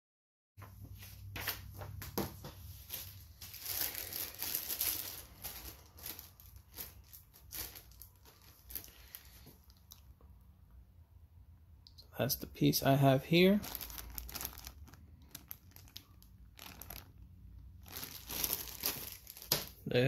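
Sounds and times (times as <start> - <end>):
plastic bag crinkling: 2.8 - 10.0, 13.0 - 19.9.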